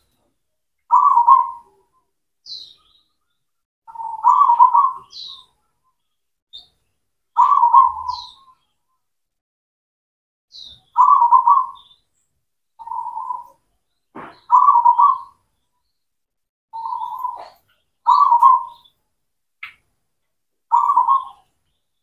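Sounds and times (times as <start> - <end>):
dove cooing: 0.9 - 1.8, 3.9 - 5.5, 7.4 - 8.4, 11.0 - 11.8, 14.2 - 15.4, 16.8 - 18.9, 20.7 - 21.4.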